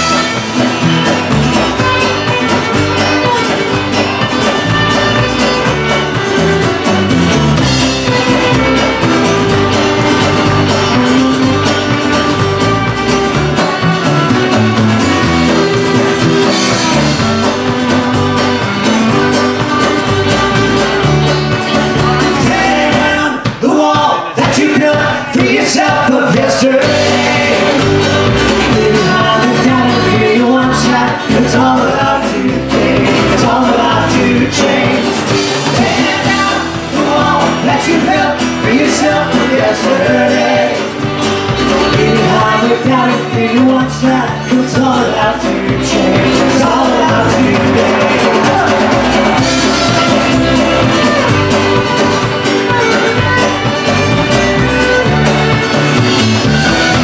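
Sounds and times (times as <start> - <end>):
fiddle: 0.0 - 23.3, 45.4 - 57.0
acoustic guitar: 0.0 - 57.0
banjo: 0.0 - 57.0
drum kit: 0.0 - 57.0
upright bass: 0.0 - 57.0
person singing: 21.6 - 41.0, 41.7 - 53.5.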